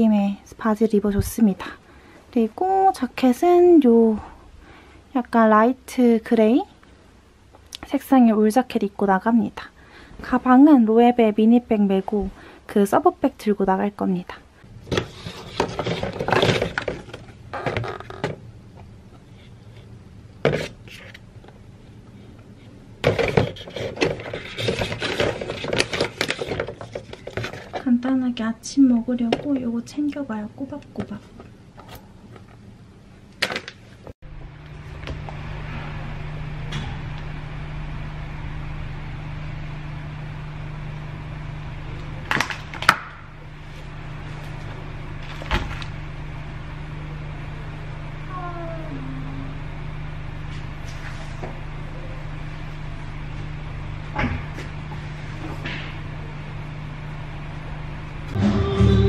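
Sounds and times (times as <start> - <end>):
low machine hum: 34.0 - 59.0.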